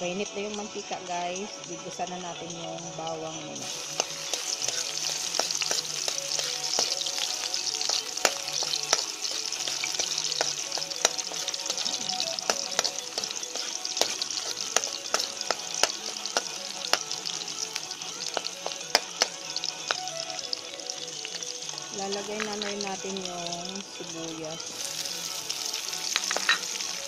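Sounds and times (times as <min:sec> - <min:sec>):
garlic sizzling in oil: 0:00.0 - 0:27.0
metal spoon stirring in wok: 0:03.6 - 0:17.4, 0:26.0 - 0:26.9.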